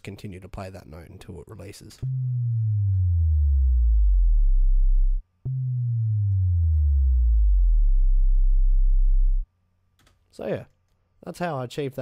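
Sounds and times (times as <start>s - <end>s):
deep synth bass gliding down: 2.0s - 9.4s.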